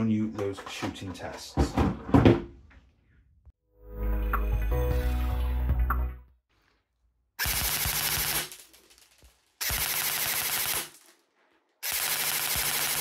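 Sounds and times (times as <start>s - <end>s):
airsoft gun full-auto bursts: 7.4s - 8.6s, 9.6s - 11.0s, 11.8s - 13.0s.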